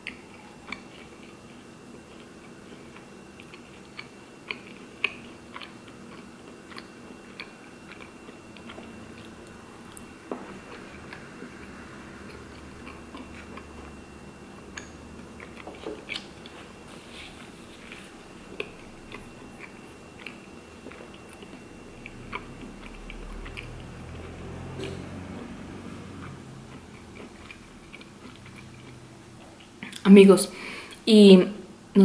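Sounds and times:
person chewing food: 0.0 - 30.0.

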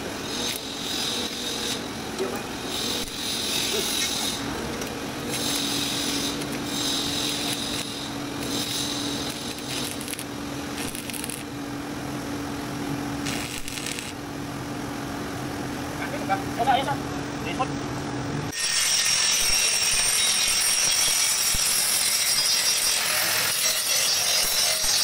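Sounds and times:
welding arc crackling: 0.0 - 11.6, 13.1 - 14.2, 18.5 - 25.0
steady low hum: 0.0 - 18.6.

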